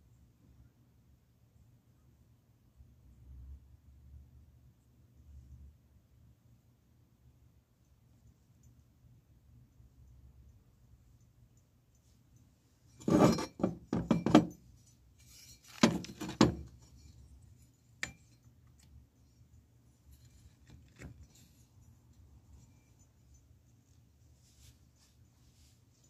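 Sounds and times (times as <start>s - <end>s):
metal parts clattering on workbench: 13.0s - 14.6s, 15.2s - 17.1s.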